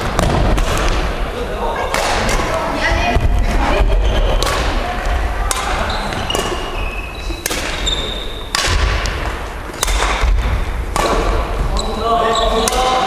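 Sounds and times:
rackets hitting shuttlecock: 0.0 - 1.2, 1.8 - 2.6, 4.2 - 11.6, 12.6 - 13.0
shoe squeaks: 3.7 - 4.4, 5.8 - 8.5, 11.7 - 12.8.

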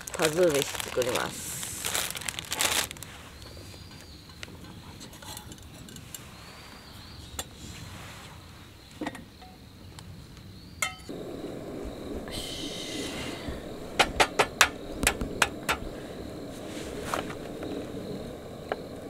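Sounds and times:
low steady rushing: 11.1 - 19.0.

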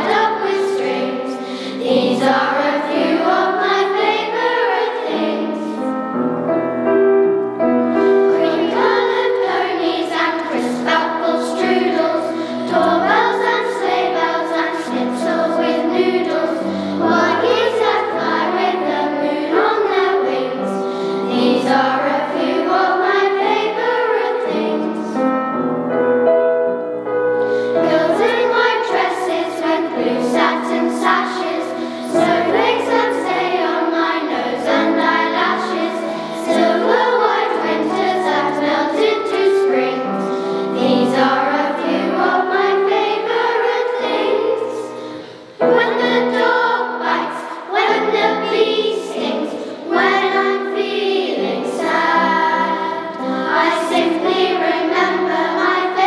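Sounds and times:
children's choir singing: 0.0 - 25.9, 26.6 - 56.0.

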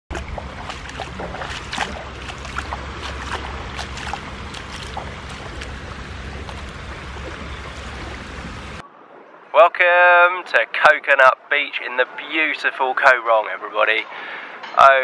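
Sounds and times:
shallow seawater washing over sand: 0.1 - 8.8
small water splashes: 0.1 - 8.8.

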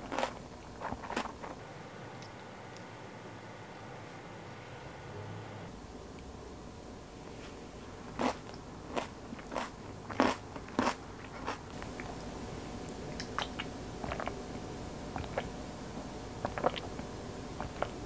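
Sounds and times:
crunchy chewing: 0.0 - 1.6, 8.2 - 12.1, 13.2 - 14.4, 15.1 - 15.5, 16.4 - 17.0.

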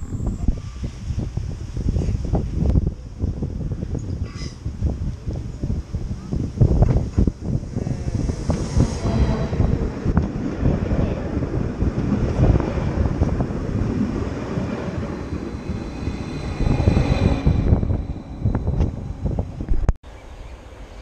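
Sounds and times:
faint high whine: 0.0 - 1.2, 14.2 - 21.0
train wheels rumbling on rails: 0.4 - 20.0.

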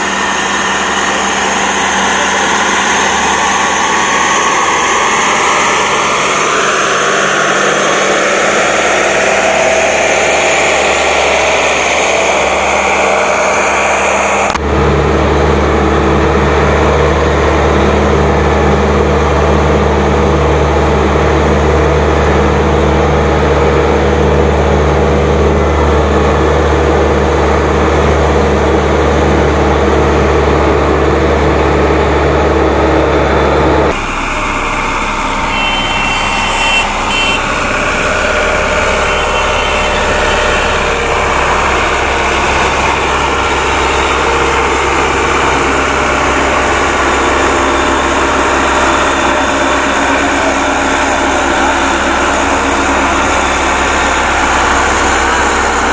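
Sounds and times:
road roller diesel engine running: 0.0 - 55.9
reversing alarm beeping: 34.0 - 55.9.

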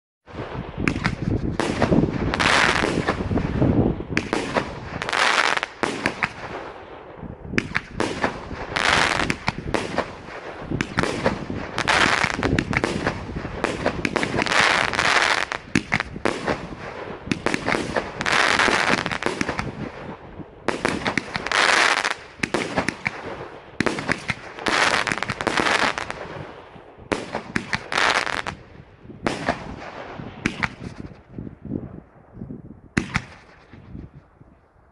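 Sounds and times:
fireworks launching and bursting: 0.3 - 31.5, 33.0 - 34.1
fireworks crackling: 0.4 - 6.8, 7.6 - 28.7.

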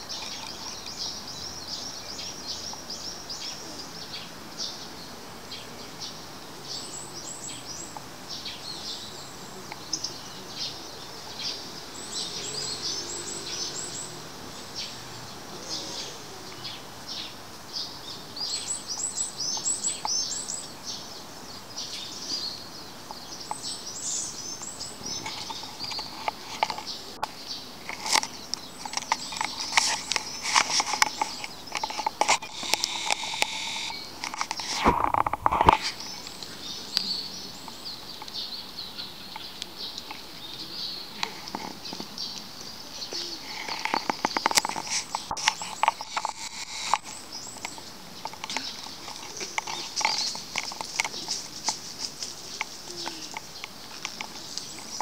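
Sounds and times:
songbirds chirping: 0.0 - 55.0
fur rustling against microphone: 27.8 - 36.4, 43.4 - 55.0.

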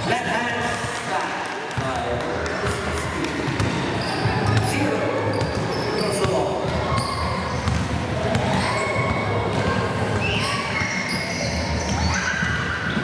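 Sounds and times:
basketball bouncing on court: 0.6 - 12.2
shoe squeaks: 4.0 - 4.6, 5.2 - 7.8, 10.2 - 13.0.

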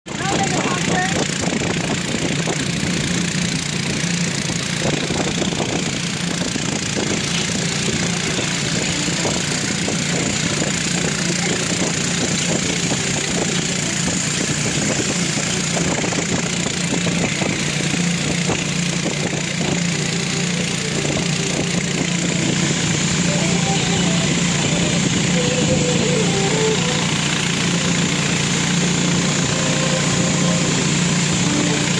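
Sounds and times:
boat motor running: 0.0 - 31.9
water rushing past hull: 0.3 - 31.9.

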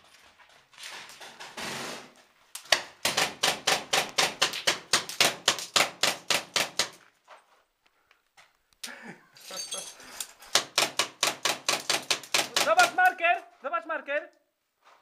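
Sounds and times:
paintball markers firing: 2.6 - 7.0, 10.5 - 13.2.

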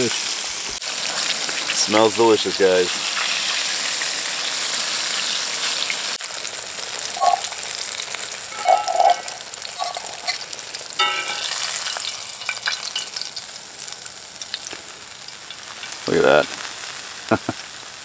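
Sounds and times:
fish sizzling in oil: 0.0 - 18.0
fork clinking in pan: 8.5 - 10.4, 11.0 - 13.2.

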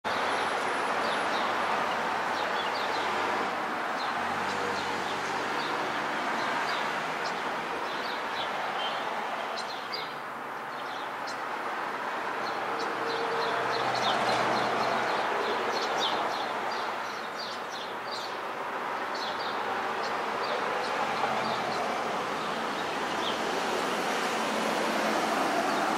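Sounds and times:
street traffic hum: 0.0 - 25.9
starlings chirping: 6.7 - 11.4, 12.4 - 23.5.

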